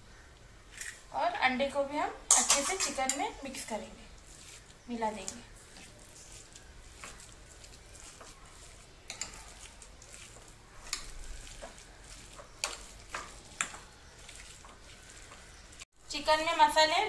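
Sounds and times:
wet mixing: 2.3 - 17.0.

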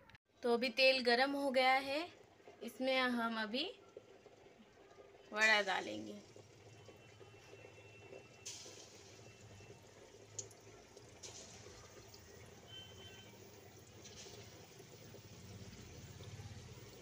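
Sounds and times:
batter sizzling in hot oil: 1.1 - 17.0
small oil pops: 10.3 - 10.6.

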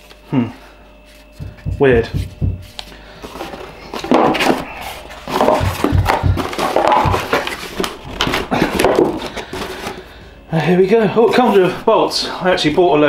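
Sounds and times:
dull knocks: 1.4 - 2.7, 5.3 - 7.5
cardboard scraping and rustling: 2.7 - 10.0.

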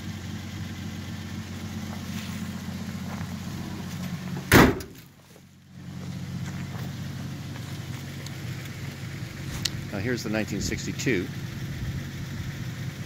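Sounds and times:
car trunk lid slamming: 4.4 - 5.0.

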